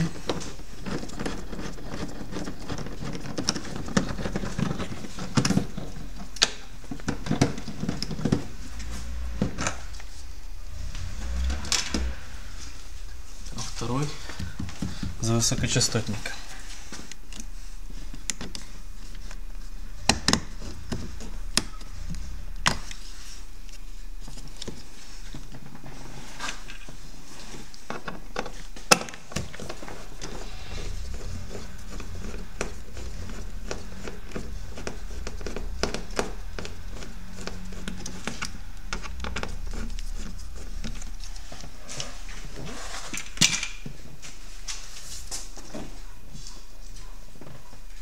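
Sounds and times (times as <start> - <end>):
steady low hum: 0.0 - 27.4, 28.6 - 46.2.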